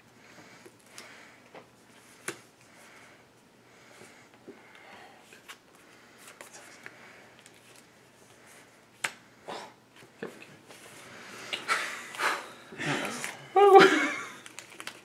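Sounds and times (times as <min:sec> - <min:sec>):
cards rustling and tapping: 0:00.6 - 0:02.6, 0:05.3 - 0:07.9, 0:14.4 - 0:15.0.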